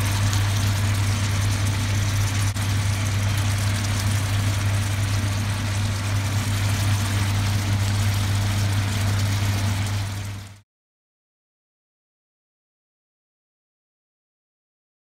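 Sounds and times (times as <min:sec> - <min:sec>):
stove hum and hiss: 0:00.0 - 0:10.6.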